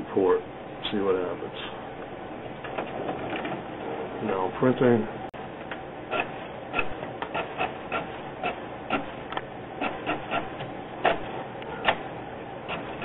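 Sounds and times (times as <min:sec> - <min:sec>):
inkjet printer printing: 0:06.1 - 0:09.2, 0:09.8 - 0:13.0.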